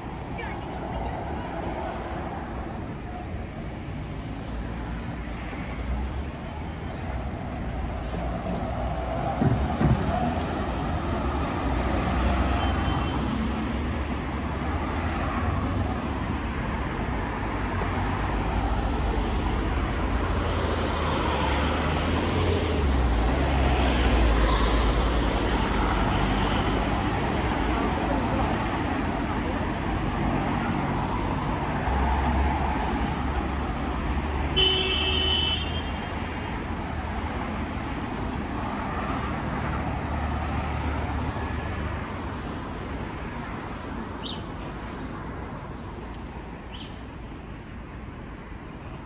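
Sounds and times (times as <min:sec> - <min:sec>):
cars and bus passing: 0:00.0 - 0:49.0.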